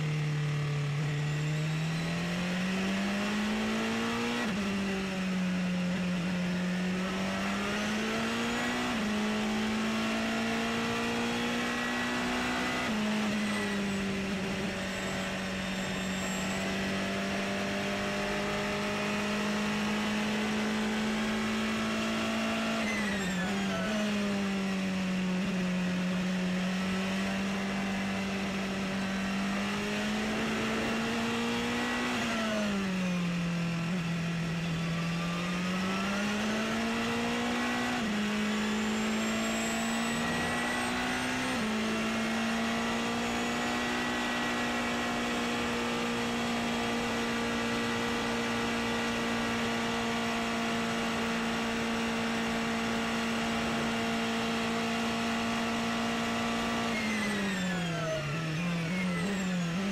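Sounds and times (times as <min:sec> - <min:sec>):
racing engine: 0:00.0 - 0:59.9.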